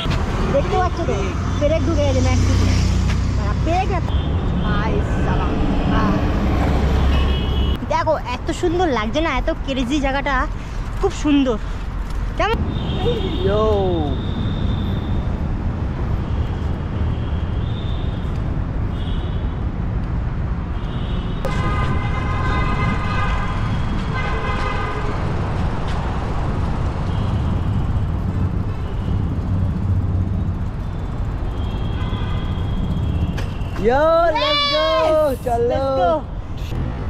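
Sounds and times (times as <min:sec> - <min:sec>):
road traffic rumble: 0:00.0 - 0:37.0
vehicle horn blasts: 0:07.1 - 0:07.8, 0:20.8 - 0:25.1, 0:31.6 - 0:33.8.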